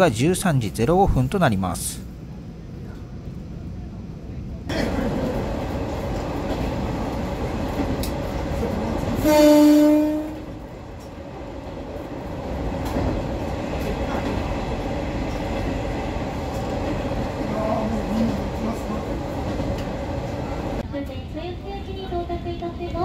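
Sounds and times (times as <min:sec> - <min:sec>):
diesel railcar rumbling: 0:00.0 - 0:23.0
train horn blast: 0:09.2 - 0:10.6.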